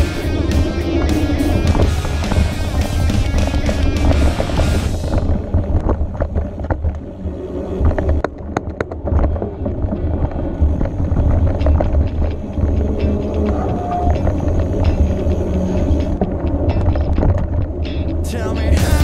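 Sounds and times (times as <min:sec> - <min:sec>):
background music: 0:00.0 - 0:05.3, 0:17.9 - 0:19.0
bike rattling over bumps: 0:00.0 - 0:19.0
tyres rumbling on dirt trail: 0:00.0 - 0:19.0.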